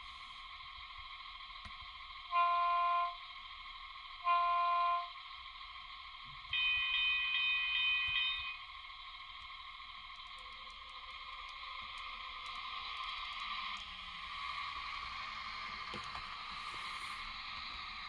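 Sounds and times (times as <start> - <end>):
steady hum: 0.0 - 18.0
train horn through small speaker: 2.3 - 3.3, 4.2 - 5.2, 6.5 - 8.6.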